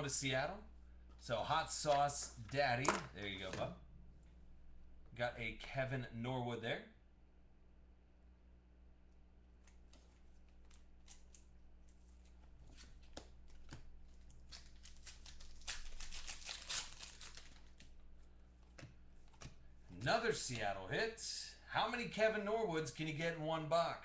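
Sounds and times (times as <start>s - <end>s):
foil wrapper crinkling and tearing: 10.4s - 18.1s.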